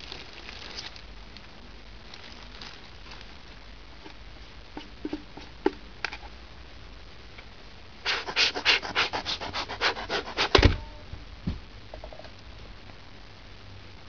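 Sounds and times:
gloved fingers rubbing plastic: 8.0s - 10.6s.

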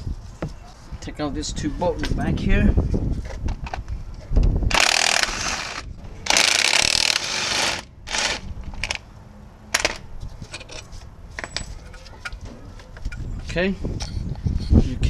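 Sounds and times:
impact wrench rattling: 4.7s - 9.0s.

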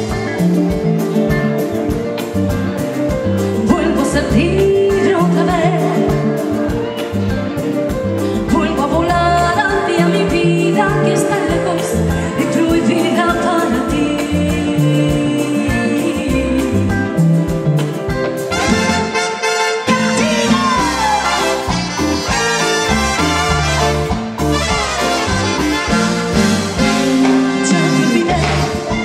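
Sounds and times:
woman singing into a microphone: 3.6s - 7.3s, 8.2s - 17.6s, 27.0s - 29.0s
dance orchestra playing: 17.1s - 29.0s.

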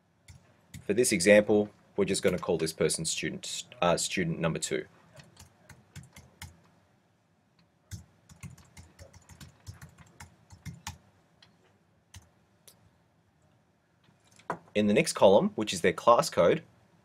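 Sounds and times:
typing on keyboard: 5.2s - 6.6s, 7.9s - 11.0s.

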